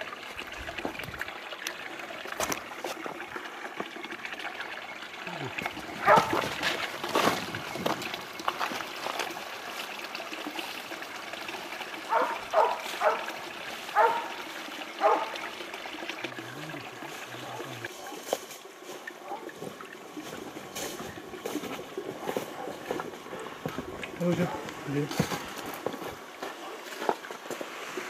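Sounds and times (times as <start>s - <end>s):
stream trickling: 0.0s - 28.0s
dog barking: 6.0s - 6.4s, 12.1s - 13.3s, 13.9s - 14.4s, 15.0s - 15.4s, 17.4s - 18.2s, 19.2s - 19.5s, 22.2s - 23.5s.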